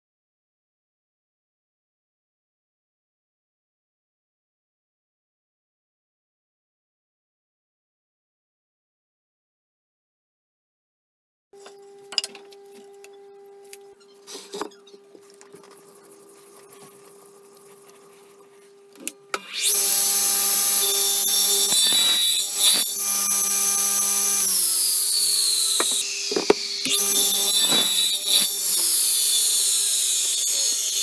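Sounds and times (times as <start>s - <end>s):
circular saw cutting wood: 13.8s - 31.0s.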